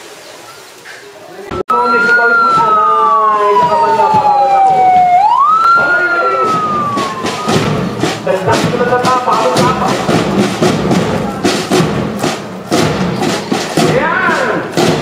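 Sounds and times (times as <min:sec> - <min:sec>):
police siren winding down: 0:01.5 - 0:07.9
parade drums beating march rhythm: 0:02.0 - 0:15.0.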